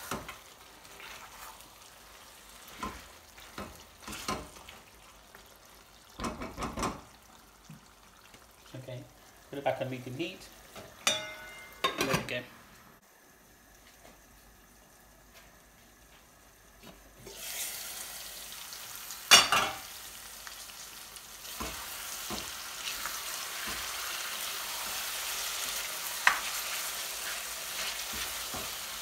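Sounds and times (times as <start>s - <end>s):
food sizzling in a pan: 0.0s - 29.0s
spatula scraping a pan: 0.8s - 1.7s
knocks against a pan: 6.2s - 7.1s.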